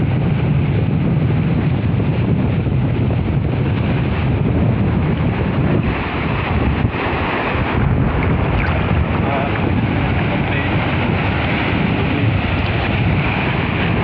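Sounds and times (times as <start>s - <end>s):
wind buffeting microphone: 0.0s - 14.0s
wash of sea water: 3.2s - 14.0s.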